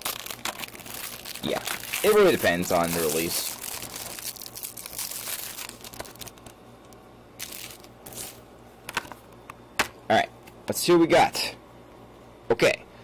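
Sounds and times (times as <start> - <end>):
plastic shrink wrap crinkling: 0.0 - 6.6, 7.4 - 8.4.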